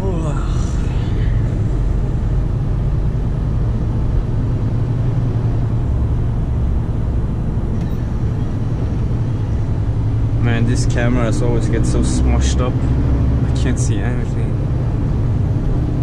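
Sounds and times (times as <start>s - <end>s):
truck diesel engine running: 0.0s - 16.0s.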